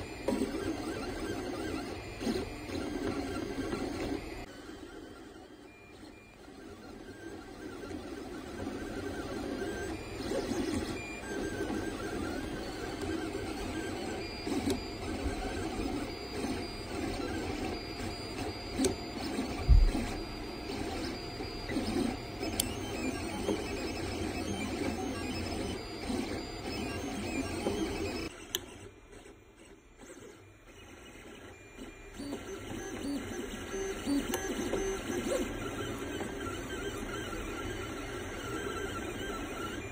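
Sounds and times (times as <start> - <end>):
printer motors whirring: 0.0 - 39.9.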